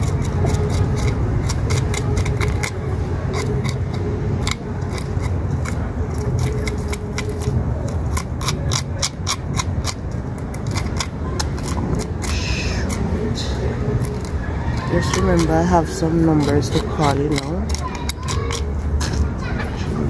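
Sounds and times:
knife scraping fish scales: 0:00.0 - 0:13.2, 0:14.0 - 0:19.3
low steady rumble: 0:00.0 - 0:20.0.

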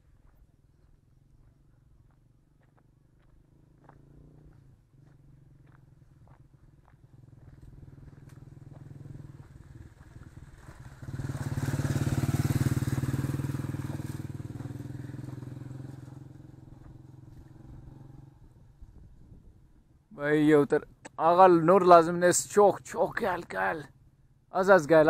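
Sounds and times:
vehicle engine passing by: 0:03.2 - 0:18.9.

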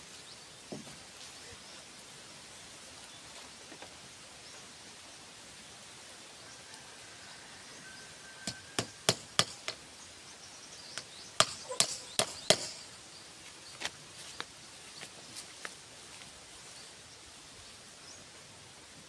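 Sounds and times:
tool knocking on bamboo fence: 0:08.4 - 0:09.8, 0:11.0 - 0:12.9.

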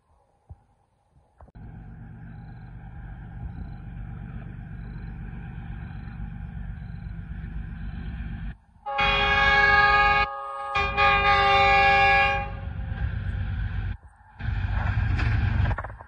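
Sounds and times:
locomotive rumble: 0:01.6 - 0:16.0
multi-tone train horn: 0:08.8 - 0:12.8.

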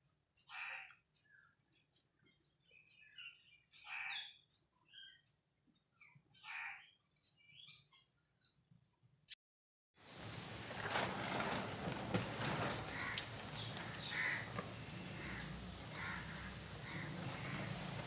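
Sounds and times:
crows cawing: 0:00.4 - 0:01.0, 0:03.8 - 0:04.3, 0:06.4 - 0:06.9, 0:12.8 - 0:18.0
oil trickling into a pan: 0:10.0 - 0:18.0.

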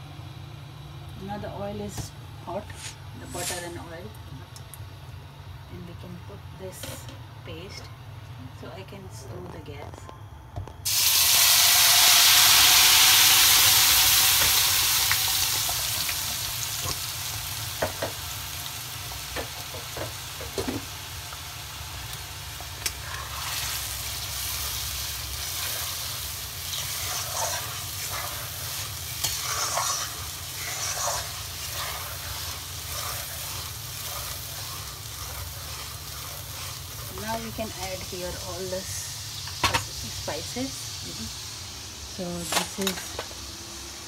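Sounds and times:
paste sizzling in hot oil: 0:10.8 - 0:42.4
metal spatula scraping pan: 0:25.4 - 0:37.8.

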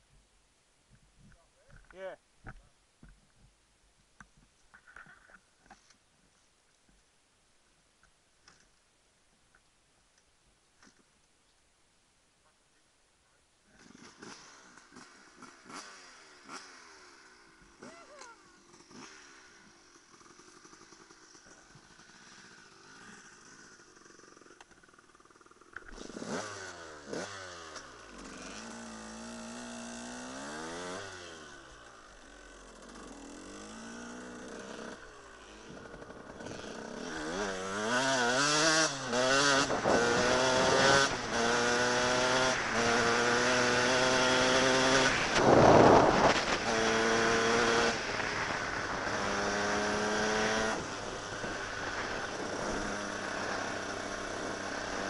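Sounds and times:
dirt bike engine revving: 0:13.7 - 0:55.0
distant motorbike revving: 0:13.7 - 0:55.0.

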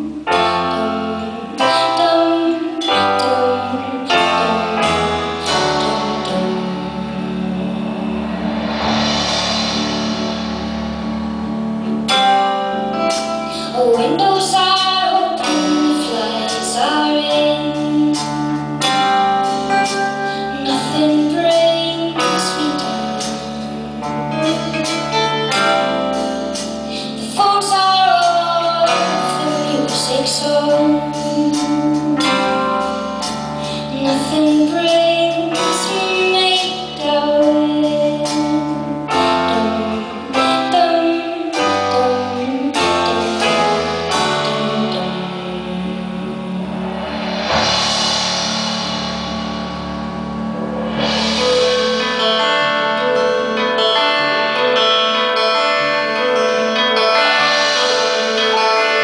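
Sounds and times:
woman singing: 0:00.0 - 0:08.2, 0:13.0 - 0:25.9, 0:26.9 - 0:32.9, 0:33.6 - 0:46.8
live band with drums and keys: 0:00.0 - 0:59.0.

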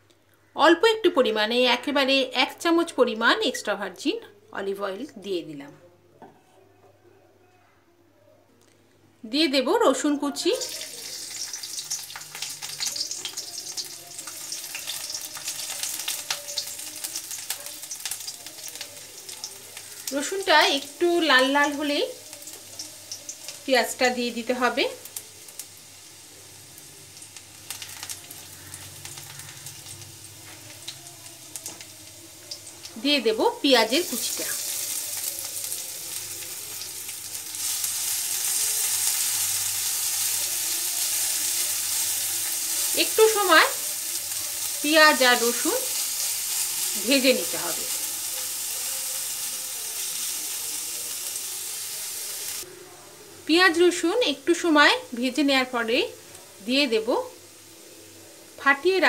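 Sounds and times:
garlic sizzling in oil: 0:09.8 - 0:52.7.

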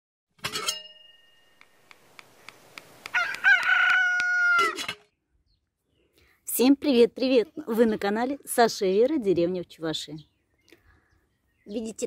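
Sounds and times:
rooster crowing: 0:03.1 - 0:04.9.

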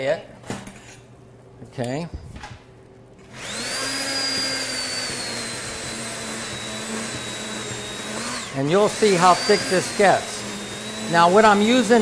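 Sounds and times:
immersion blender motor whine: 0:03.3 - 0:12.0.

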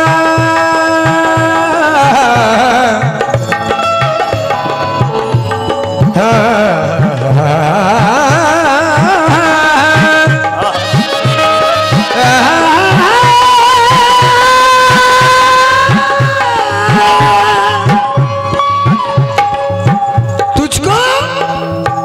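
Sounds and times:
harmonium melody with vibrato: 0:00.0 - 0:22.0
tabla beat: 0:00.0 - 0:22.0.

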